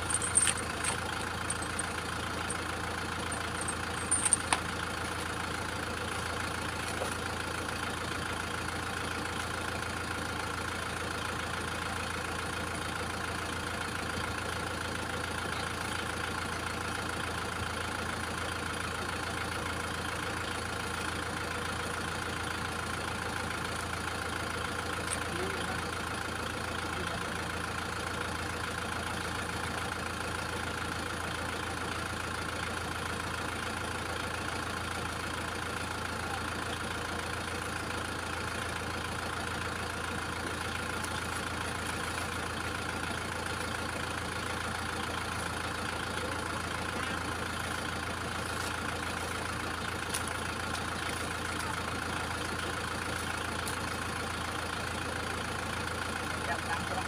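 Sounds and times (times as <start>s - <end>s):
tractor diesel engine idling: 0.0s - 57.0s.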